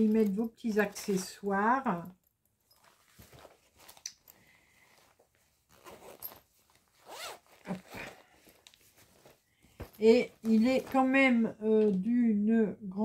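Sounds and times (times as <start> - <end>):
zipper being pulled: 5.0 - 11.0.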